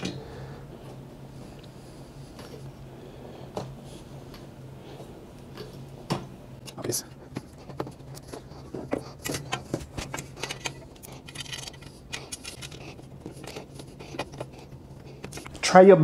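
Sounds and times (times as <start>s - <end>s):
steady low hum: 0.0s - 16.0s
thin metal pieces rattling: 10.2s - 14.3s.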